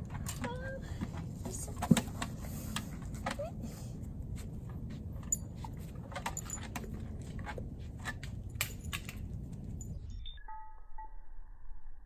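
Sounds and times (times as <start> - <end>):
low outdoor rumble: 0.0 - 10.4
puppy claws clicking on concrete: 4.5 - 9.9.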